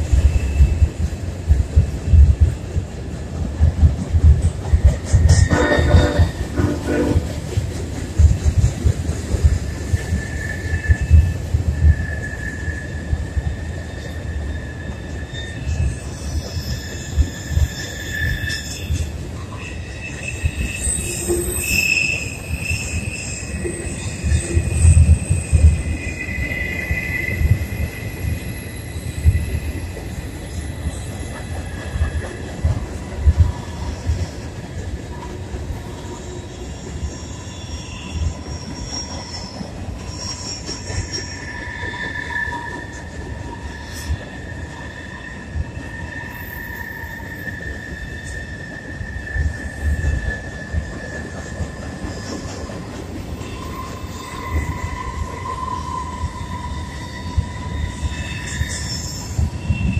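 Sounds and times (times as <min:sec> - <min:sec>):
train rolling rumble: 0:00.0 - 0:59.9
wheel squeal: 0:10.0 - 0:29.9, 0:36.6 - 0:52.4, 0:53.4 - 0:59.9.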